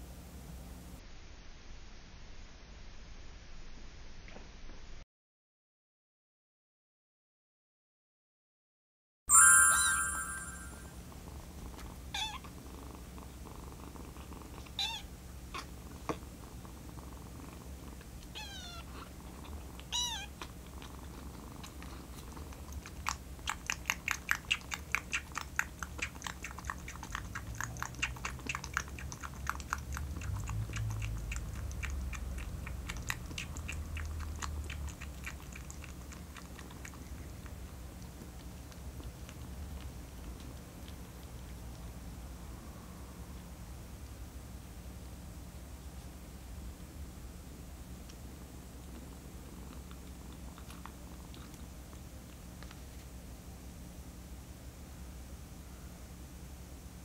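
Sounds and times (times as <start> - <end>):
kitten suckling from bottle: 19.8 - 41.9.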